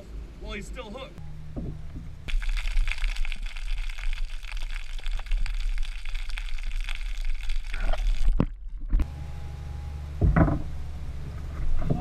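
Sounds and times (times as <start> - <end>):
underwater rumble with crackles: 1.5 - 9.1.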